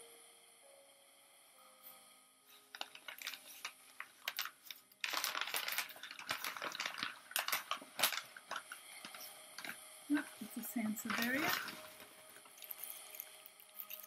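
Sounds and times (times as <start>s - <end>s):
newspaper crinkling and rustling: 2.7s - 9.8s, 10.9s - 14.0s.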